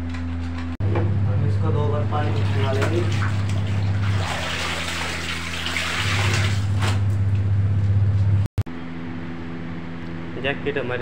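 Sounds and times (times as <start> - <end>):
steady low hum: 0.0 - 11.0
water splashing and sloshing: 1.9 - 7.4.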